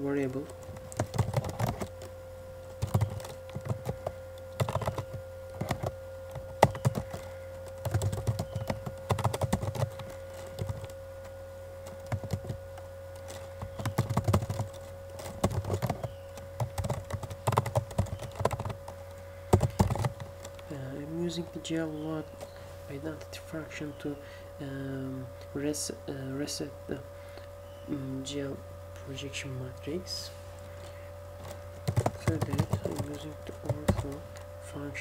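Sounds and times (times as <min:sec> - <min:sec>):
faint hum: 0:00.0 - 0:35.0
computer keyboard typing: 0:00.3 - 0:02.1, 0:02.7 - 0:11.0, 0:11.8 - 0:12.6, 0:13.2 - 0:20.7, 0:31.4 - 0:34.4.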